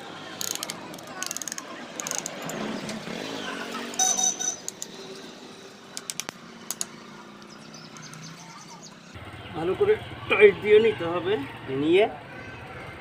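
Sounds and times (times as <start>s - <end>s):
ratchet clicking: 0.4s - 2.6s
vehicle engine passing: 1.8s - 13.0s
metallic ring: 4.0s - 4.7s.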